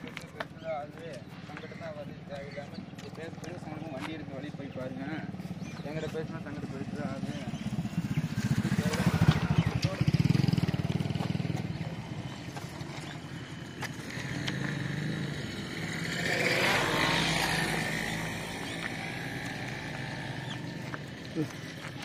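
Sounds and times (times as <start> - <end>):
traffic noise: 0.0 - 22.0
vehicle engine running: 6.2 - 22.0.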